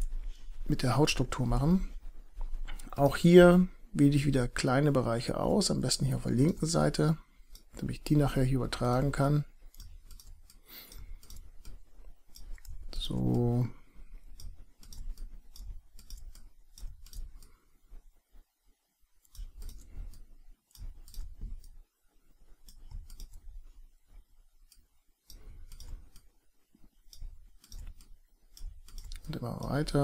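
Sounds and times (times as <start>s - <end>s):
low background hum: 0.0s - 30.0s
computer mouse clicking: 6.4s - 17.6s, 19.2s - 21.8s, 22.5s - 30.0s.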